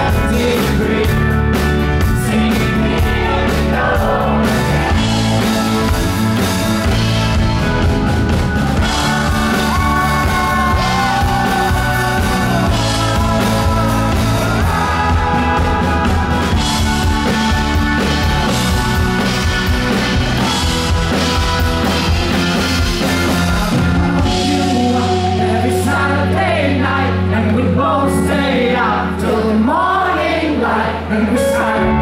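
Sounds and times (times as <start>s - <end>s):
man singing: 0.0s - 7.0s, 8.8s - 22.2s, 22.8s - 29.8s
piano: 0.0s - 32.0s
drum beat: 2.9s - 24.6s.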